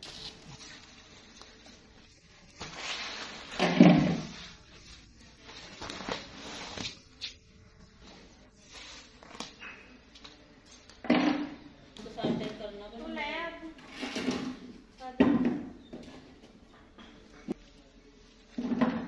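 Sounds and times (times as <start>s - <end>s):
mat scraping and slapping floor: 2.5s - 4.6s.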